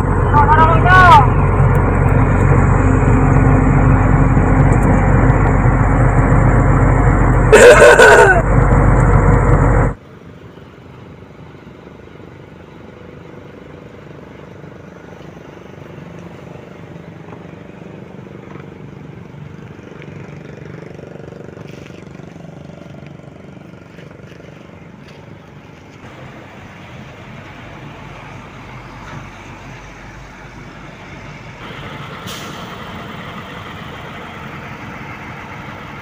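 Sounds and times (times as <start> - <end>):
truck engine running loud: 0.0 - 36.0
truck engines idling: 0.0 - 36.0.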